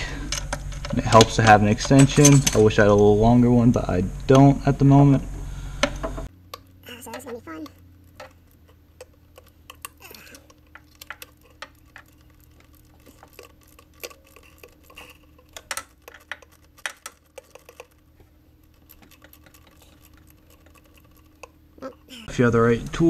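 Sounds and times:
faint steady hum: 0.0s - 23.0s
ratchet clicking: 5.8s - 21.6s.

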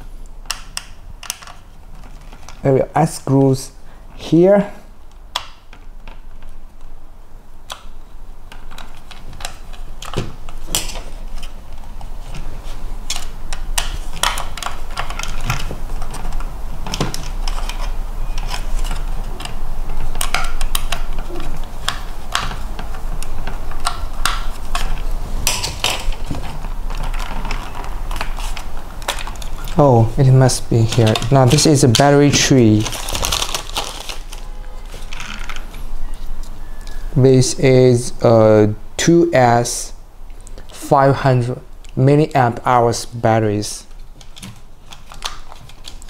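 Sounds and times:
plastic parts clicking and rattling: 0.4s - 2.7s, 8.5s - 34.4s, 35.0s - 35.7s, 43.9s - 46.0s.

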